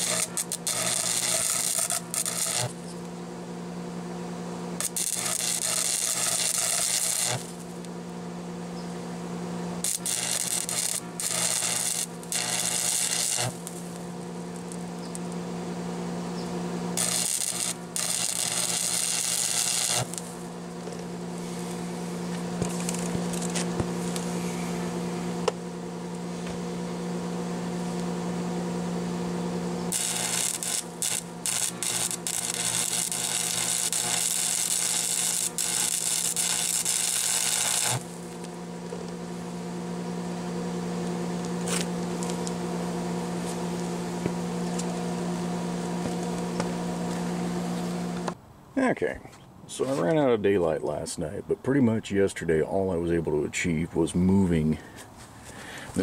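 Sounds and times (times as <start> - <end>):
welding arc crackling: 0.0 - 2.9, 4.8 - 8.0, 9.8 - 15.4, 16.8 - 24.3, 29.9 - 39.2
welding machine hum: 0.0 - 48.4.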